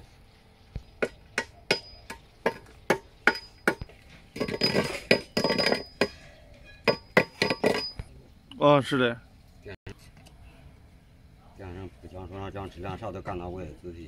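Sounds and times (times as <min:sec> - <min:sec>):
hammer striking ringing metal: 0:01.4 - 0:03.8
noisy metal clatter: 0:01.7 - 0:06.1, 0:06.8 - 0:08.1.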